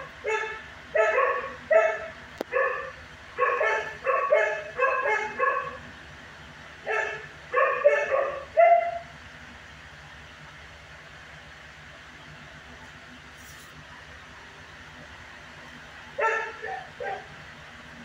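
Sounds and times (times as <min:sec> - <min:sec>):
dog barking: 0:00.2 - 0:05.8, 0:06.9 - 0:09.0, 0:16.2 - 0:17.3.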